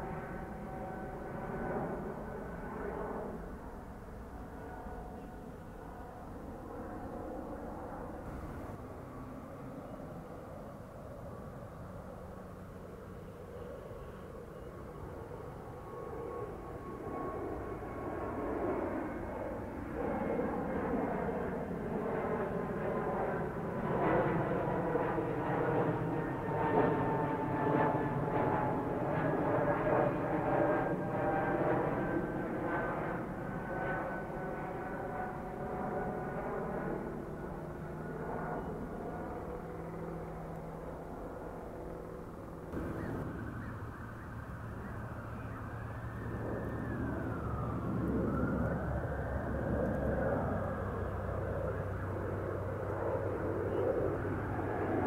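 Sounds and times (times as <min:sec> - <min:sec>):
jet engine rumble and whine: 0:00.0 - 0:55.0.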